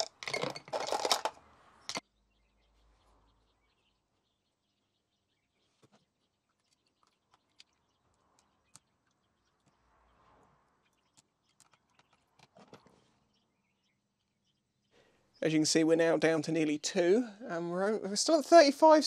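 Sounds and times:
faint small clicks and crackles: 0:05.8 - 0:09.8, 0:10.8 - 0:13.0.

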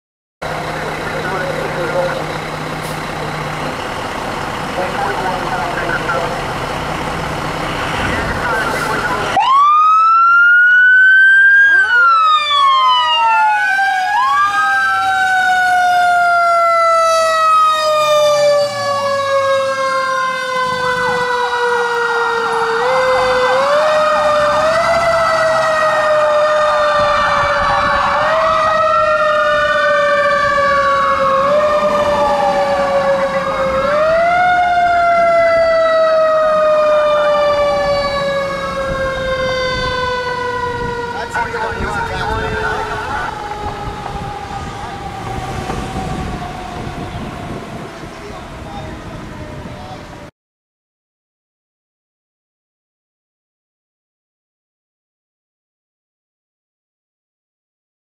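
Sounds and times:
rapid siren yelp: 0:00.4 - 0:03.2, 0:04.8 - 0:50.3
wailing siren: 0:00.4 - 0:50.3
siren winding up and falling: 0:07.9 - 0:49.9.

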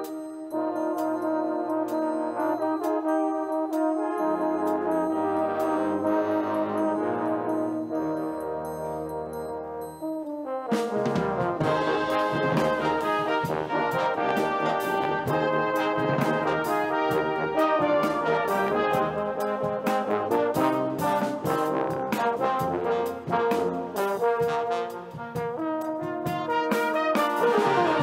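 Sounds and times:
brass band playing chords: 0:00.0 - 0:28.0.

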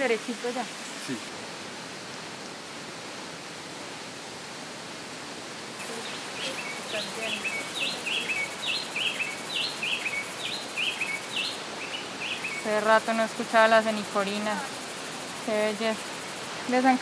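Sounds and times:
bird singing whistled notes: 0:05.8 - 0:12.7.

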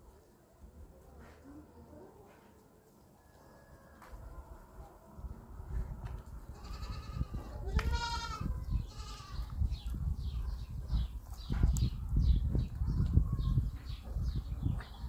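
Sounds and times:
goats bleating: 0:06.5 - 0:09.4.

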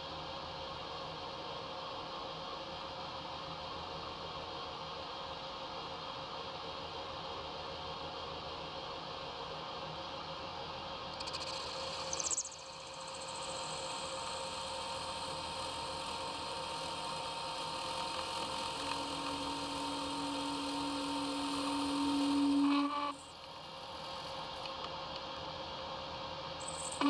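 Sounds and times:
metal lathe cutting steel: 0:18.2 - 0:23.1.

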